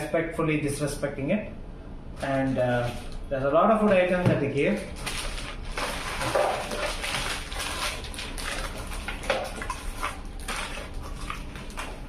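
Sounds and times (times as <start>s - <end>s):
plastic wrappers crinkling: 4.6s - 12.0s.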